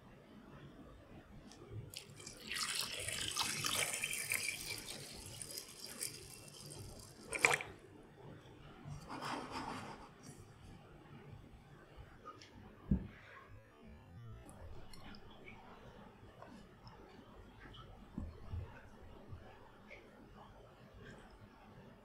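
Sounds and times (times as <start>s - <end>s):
liquid pouring onto rice: 1.9s - 7.7s
soft splash: 7.0s - 7.7s.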